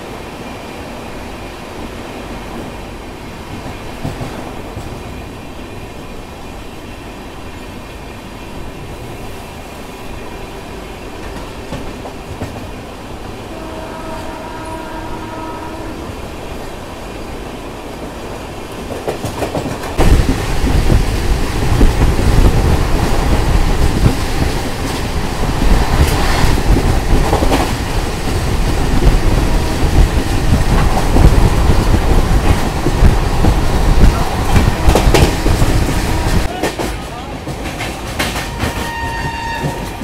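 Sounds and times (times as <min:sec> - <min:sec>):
train wheels clattering: 0:11.0 - 0:12.9, 0:18.0 - 0:40.0.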